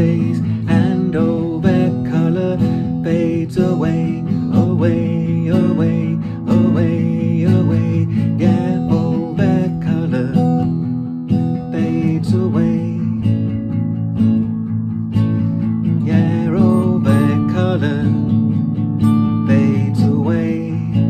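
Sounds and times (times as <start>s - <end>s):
man singing: 0.0s - 13.5s, 15.9s - 21.0s
acoustic guitar chords: 0.0s - 21.0s.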